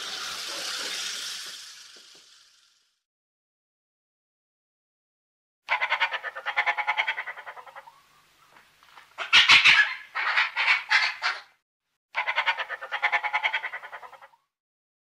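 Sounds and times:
fox pulsed chattering: 5.7 - 8.0, 12.2 - 14.4.

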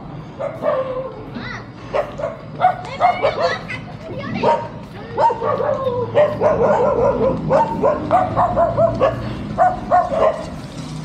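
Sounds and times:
dog barking: 0.4 - 1.1, 1.9 - 3.6, 4.4 - 10.5.

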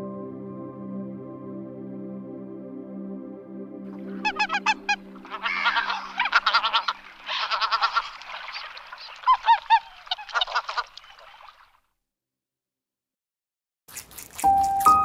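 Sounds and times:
geese honking: 3.9 - 11.6.

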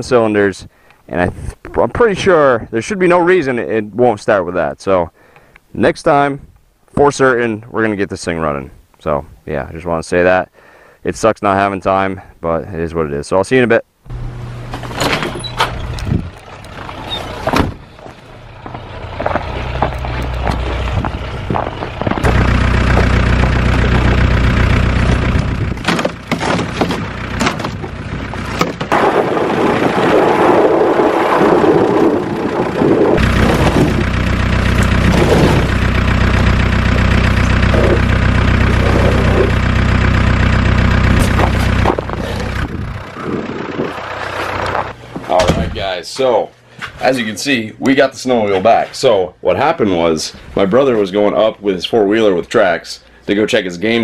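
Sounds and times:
vehicle engine running: 14.1 - 45.9.

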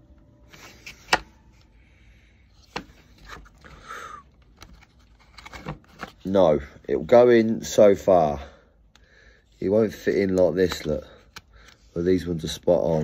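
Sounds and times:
plastic scraping and handling: 4.4 - 7.1, 9.6 - 12.2.

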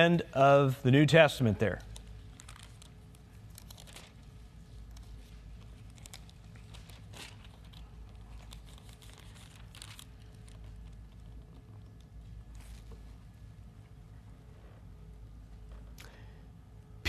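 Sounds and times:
thin pages turning: 1.9 - 13.0.

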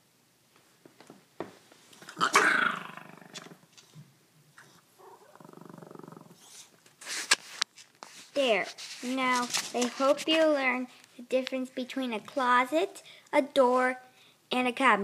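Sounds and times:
small dog growling: 2.0 - 3.6, 4.6 - 6.7
small dog grumbling cry: 2.1 - 3.6, 5.0 - 6.5.

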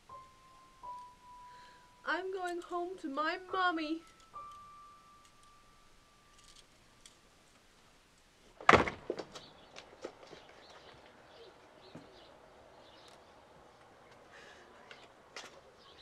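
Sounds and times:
door flung open thud: 8.6 - 9.5.

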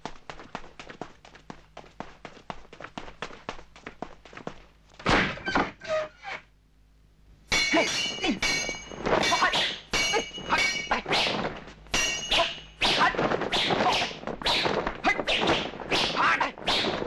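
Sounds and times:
metallic sword clashes: 7.5 - 13.0
sharp hits: 7.5 - 17.0.

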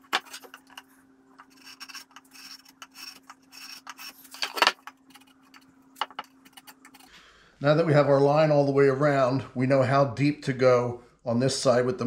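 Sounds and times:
marking gauge scratching wood: 1.4 - 4.5.

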